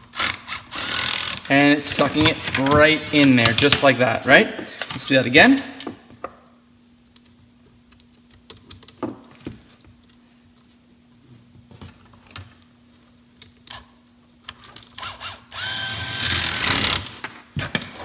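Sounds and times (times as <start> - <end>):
small electric motor hum: 15.0 - 17.0.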